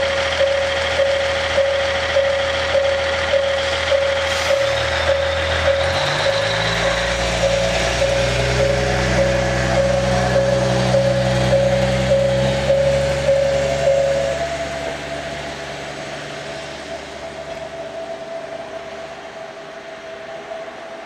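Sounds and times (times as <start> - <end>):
pulsing ringing tone: 0.0 - 15.3
diesel railcar engine revving: 0.0 - 21.0.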